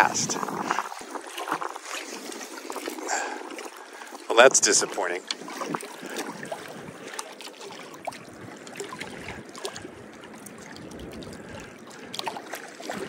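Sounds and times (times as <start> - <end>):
small water splashes: 0.0 - 13.0
small waves lapping on rocks: 0.0 - 13.0.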